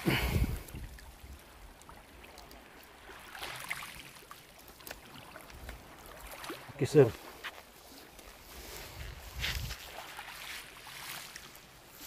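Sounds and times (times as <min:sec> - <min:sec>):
wind on microphone: 0:00.0 - 0:01.4, 0:08.5 - 0:10.0.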